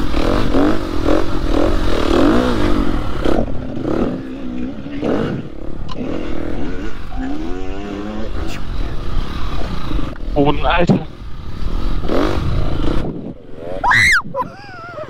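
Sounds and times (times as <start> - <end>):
dirt bike engine revving: 0.0 - 15.0
wind on microphone: 7.7 - 15.0.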